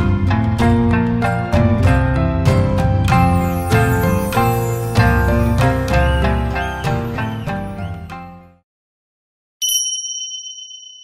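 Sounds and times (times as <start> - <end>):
instrumental background music: 0.0 - 8.6.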